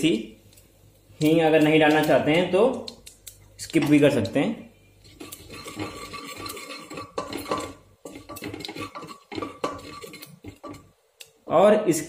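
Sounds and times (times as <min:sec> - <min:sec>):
seeds sizzling in hot oil: 0:04.8 - 0:11.4
spatula scraping a pan: 0:05.0 - 0:11.0.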